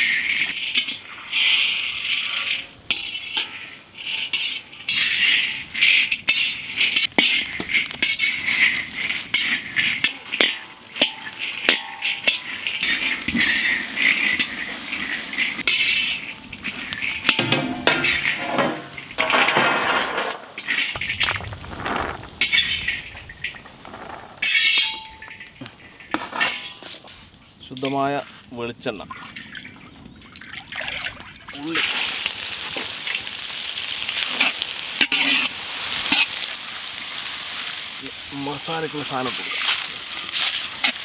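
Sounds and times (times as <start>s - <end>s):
metal skimmer scraping pan: 0.0s - 27.3s, 34.3s - 36.5s.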